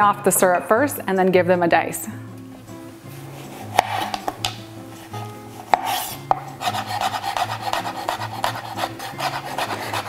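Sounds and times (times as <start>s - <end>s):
knife cutting on board: 3.4s - 10.0s
fast knife chopping: 3.7s - 4.6s, 5.7s - 10.0s.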